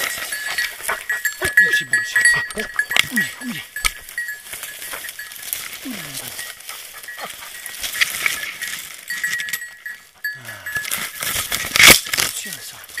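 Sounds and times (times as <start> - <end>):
rustling of branches and grass: 0.0 - 13.0
thin metallic jingle: 0.0 - 13.0.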